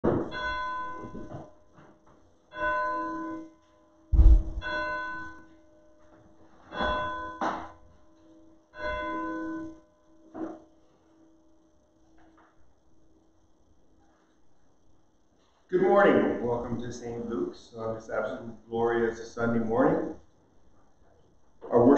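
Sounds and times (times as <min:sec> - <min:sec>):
church bell tolling: 0:00.0 - 0:01.4, 0:02.5 - 0:03.4, 0:04.2 - 0:05.5, 0:06.7 - 0:07.8, 0:08.8 - 0:09.8
loud deep thump: 0:04.2 - 0:04.8.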